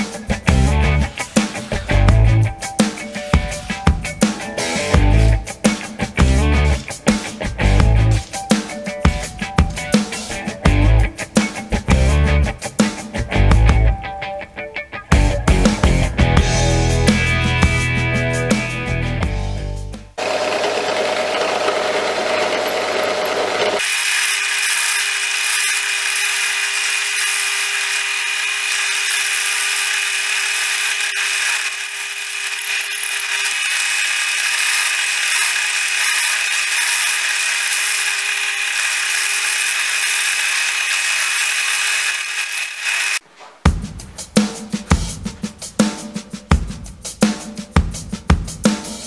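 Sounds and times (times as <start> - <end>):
drill press whining: 20.2 - 43.2.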